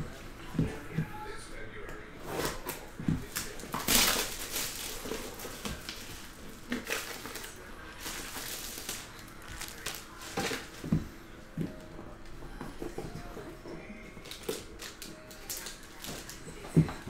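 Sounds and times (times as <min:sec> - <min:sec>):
cellophane crinkling: 0:02.4 - 0:10.9, 0:14.0 - 0:17.0.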